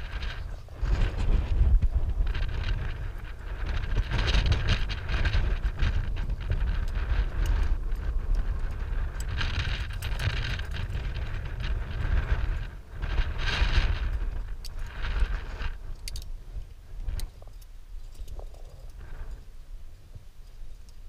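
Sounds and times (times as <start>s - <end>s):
wind rumble on microphone: 0.0s - 21.0s
climbing gear clinking: 2.3s - 19.5s.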